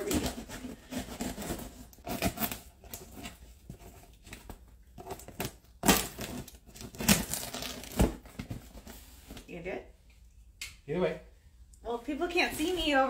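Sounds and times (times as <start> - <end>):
tape and cardboard tearing: 0.0 - 8.6.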